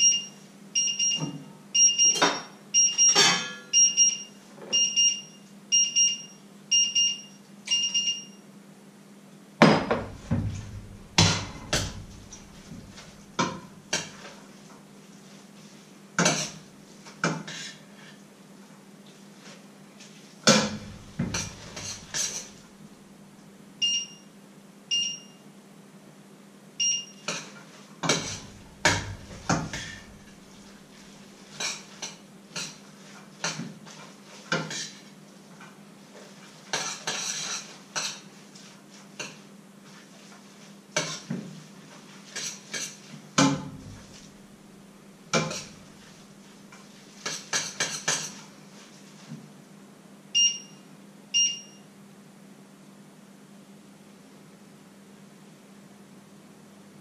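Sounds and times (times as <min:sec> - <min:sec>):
short electronic beeps: 0:00.0 - 0:08.4, 0:26.8 - 0:27.2
metal utensil clanking on pots: 0:03.2 - 0:03.7, 0:09.8 - 0:12.8, 0:20.5 - 0:22.5, 0:27.3 - 0:30.4.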